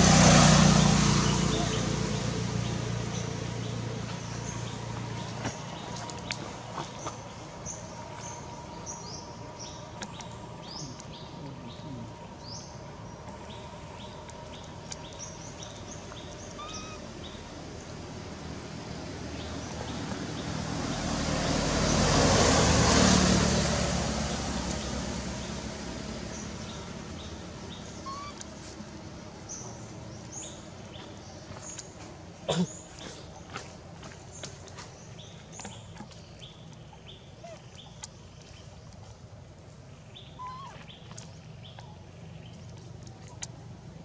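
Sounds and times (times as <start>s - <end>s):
vehicle passing on road: 0.0s - 32.4s.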